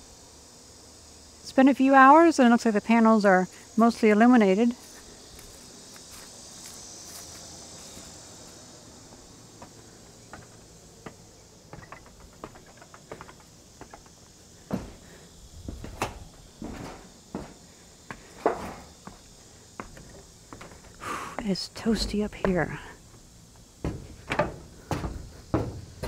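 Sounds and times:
high-pitched insect chorus: 0:00.0 - 0:26.0
footsteps on wooden ladder: 0:10.3 - 0:22.8, 0:23.8 - 0:26.0.

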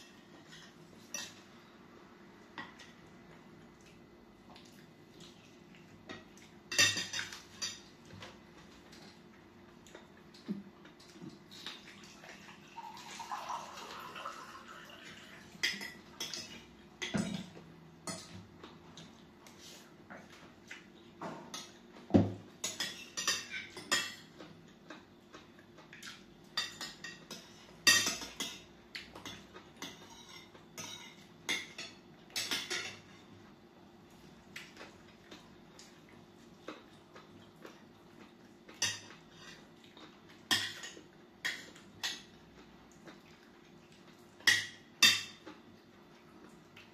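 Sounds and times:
cutlery clinking on plates: 0:06.1 - 0:08.4, 0:21.2 - 0:24.4, 0:26.1 - 0:33.2, 0:38.7 - 0:42.4, 0:44.4 - 0:45.6
water poured into glass: 0:12.8 - 0:15.0.

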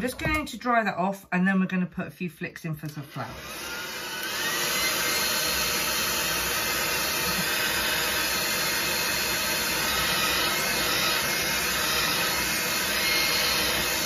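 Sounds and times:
hairdryer blowing: 0:02.8 - 0:14.0.

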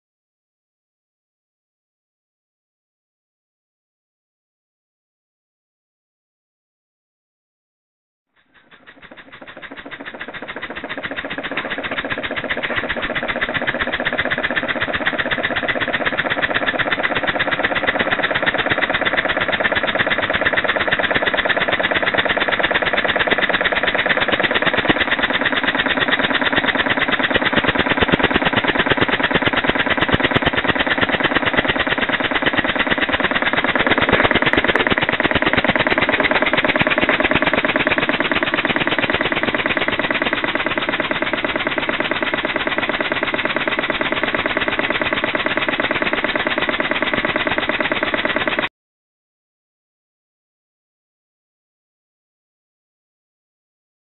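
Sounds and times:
model steam engine rattling buzz: 0:08.4 - 0:48.7.

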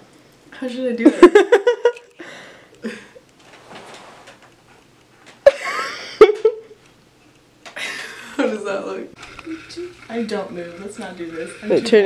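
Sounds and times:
faint rustling: 0:03.3 - 0:05.4
woman's voice: 0:08.4 - 0:12.0.

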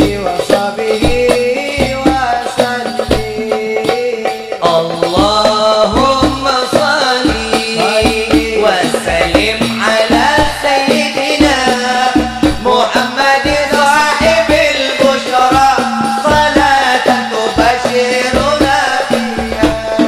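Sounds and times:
hand drum beating: 0:00.0 - 0:20.0
man singing through a microphone: 0:00.0 - 0:20.0.

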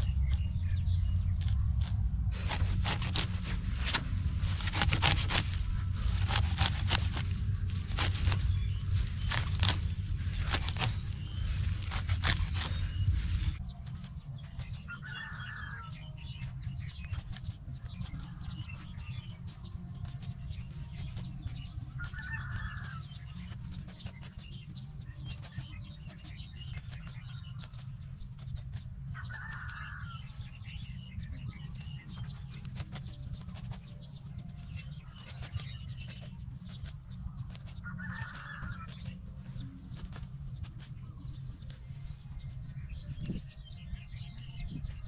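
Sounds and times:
grass rustling and snipping: 0:00.0 - 0:45.0
steady low rumble: 0:00.0 - 0:45.0
bird calling: 0:14.5 - 0:17.2, 0:20.6 - 0:45.0.

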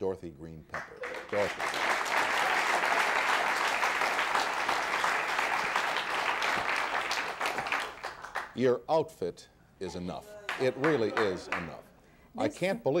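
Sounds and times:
audience applauding: 0:00.8 - 0:08.6, 0:10.4 - 0:11.9.

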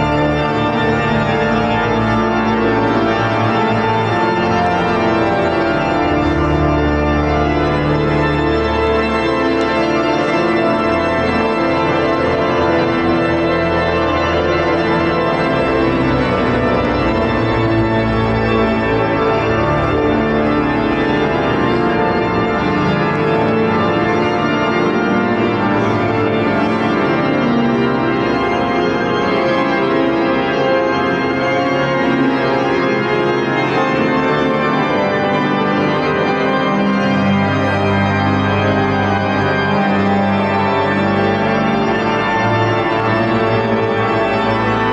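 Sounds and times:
pipe organ chords: 0:00.0 - 0:44.9.

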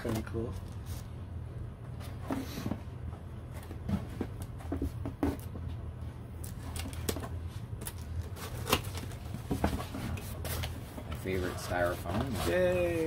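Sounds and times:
cardboard box rustling and knocking: 0:02.0 - 0:05.6, 0:08.4 - 0:12.8.

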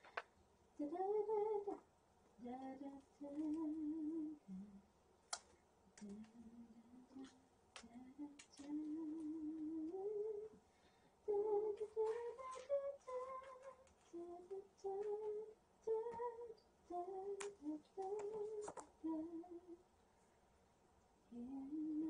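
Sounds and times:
woman humming: 0:02.4 - 0:04.8.

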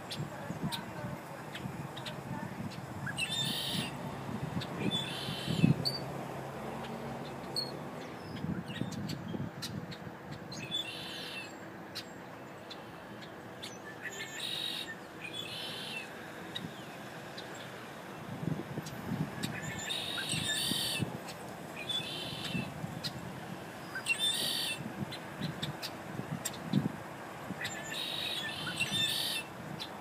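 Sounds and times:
bird calling: 0:03.0 - 0:04.0, 0:04.6 - 0:06.0, 0:10.5 - 0:16.8, 0:19.4 - 0:23.2, 0:23.8 - 0:26.9, 0:27.6 - 0:30.0.

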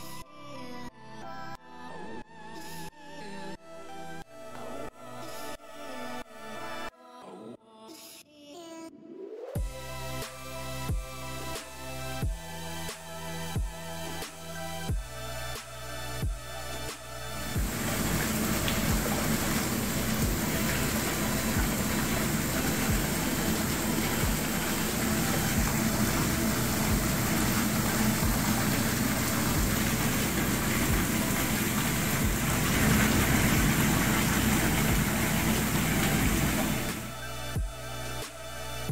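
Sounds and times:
jet pump hum: 0:17.4 - 0:37.2
churning bubbling water: 0:17.6 - 0:37.1.

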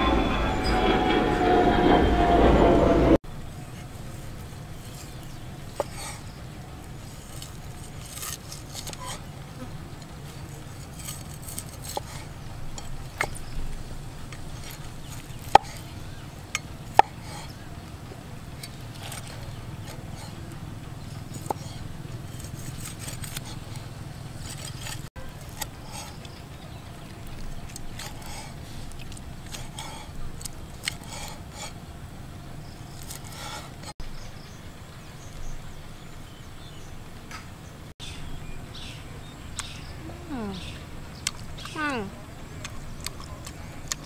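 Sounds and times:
cleaver chopping on wooden block: 0:15.4 - 0:15.8, 0:16.9 - 0:17.5.

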